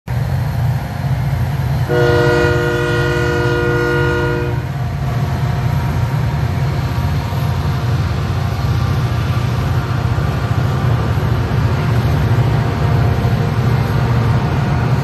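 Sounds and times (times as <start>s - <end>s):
diesel locomotives rumbling: 0.1s - 15.0s
locomotive air horn: 1.8s - 4.8s.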